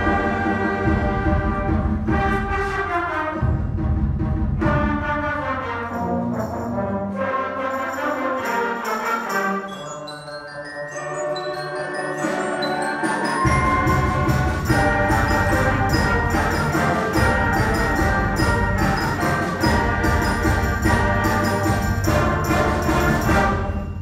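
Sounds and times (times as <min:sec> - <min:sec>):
concert band playing: 0:00.0 - 0:07.1, 0:11.5 - 0:24.0
low brass and drums: 0:00.0 - 0:07.5, 0:13.4 - 0:24.0.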